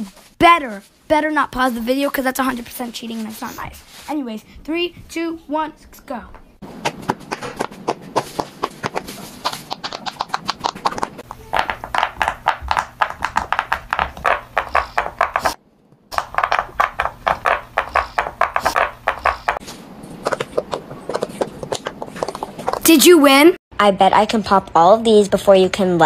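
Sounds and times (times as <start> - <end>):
fidget toy bubbles popping: 9.6 - 19.6.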